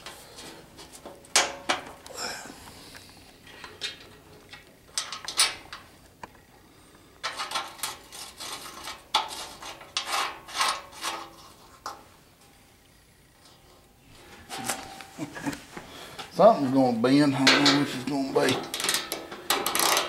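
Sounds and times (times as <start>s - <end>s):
metal bolts clinking and scraping: 0.0s - 2.0s, 3.4s - 5.9s, 7.2s - 12.6s, 13.4s - 15.2s, 17.0s - 20.0s.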